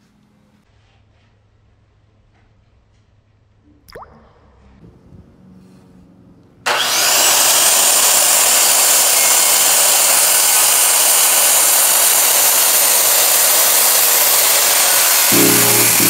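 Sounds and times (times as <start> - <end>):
circular saw cutting wood: 6.6 - 16.0.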